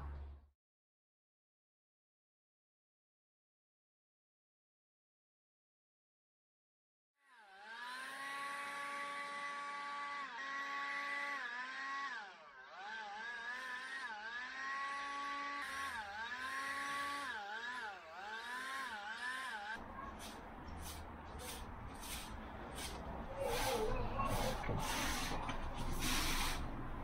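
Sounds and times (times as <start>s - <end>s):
leaf blower running: 7.4s - 26.6s.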